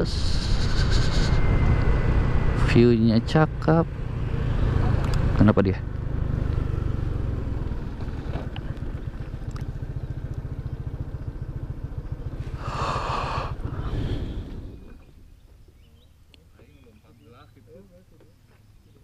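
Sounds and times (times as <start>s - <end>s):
wind noise on microphone: 0.0s - 2.0s
scooter engine running: 0.4s - 15.6s.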